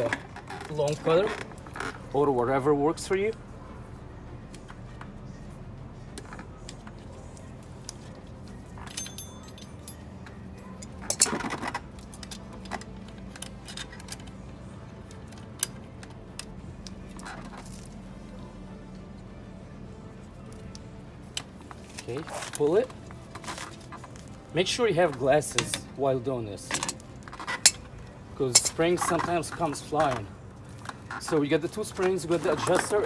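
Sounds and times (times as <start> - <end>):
metallic jingle: 8.8 - 11.3
metal brake hardware clinks: 8.8 - 11.5, 26.7 - 29.3.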